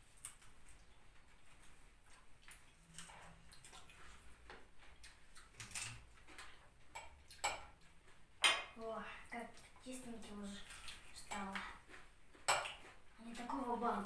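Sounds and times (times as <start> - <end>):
cutlery and dishes clinking: 5.6 - 7.8, 12.4 - 12.8.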